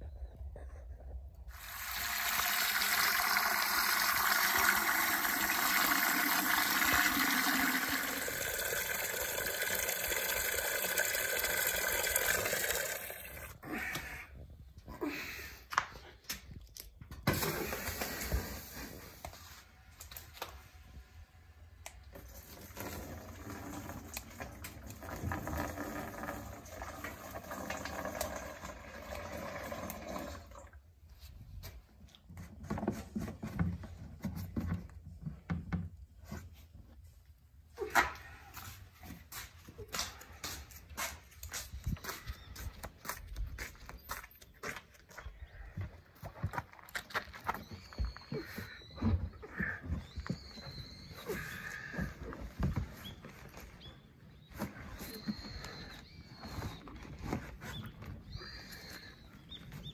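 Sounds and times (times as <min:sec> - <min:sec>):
water gushing pour: 0:01.5 - 0:13.6, 0:22.4 - 0:30.8.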